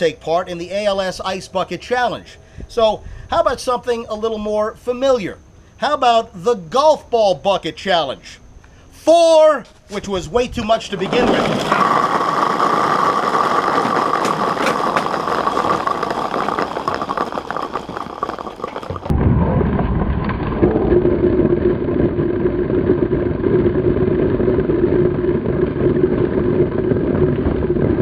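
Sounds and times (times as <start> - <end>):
deep muffled rumble: 10.2 - 28.0
golf balls clattering on tile: 11.0 - 19.1.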